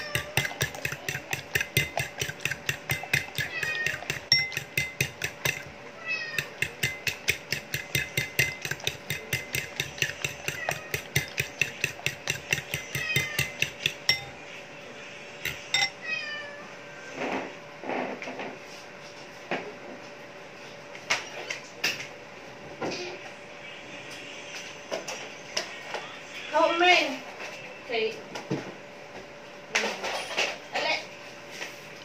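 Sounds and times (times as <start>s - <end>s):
fork beating eggs in a bowl: 0.0s - 14.6s, 15.3s - 16.0s
cat meowing: 3.4s - 4.1s.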